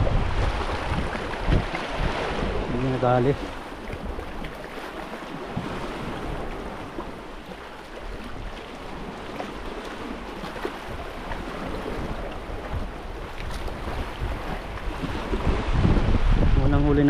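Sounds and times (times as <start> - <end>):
small waves washing over rocks: 0.0 - 16.2
wind buffeting microphone: 0.0 - 17.0.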